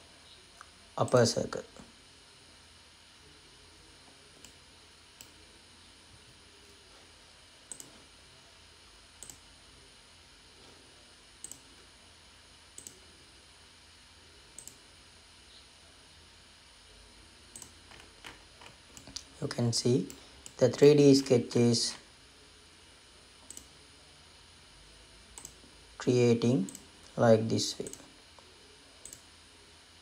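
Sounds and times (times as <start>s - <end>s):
steady low hiss: 0.0s - 30.0s.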